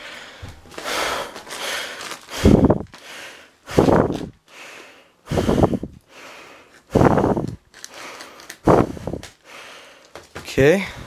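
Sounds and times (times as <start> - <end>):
person breathing hard: 0.0 - 11.0
plastic mailer being torn open: 0.7 - 3.0, 7.6 - 8.6.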